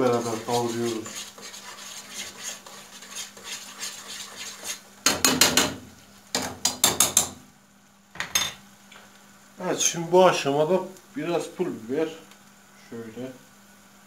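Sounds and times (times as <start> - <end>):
metal spoon scraping frying pan: 0.0 - 4.8.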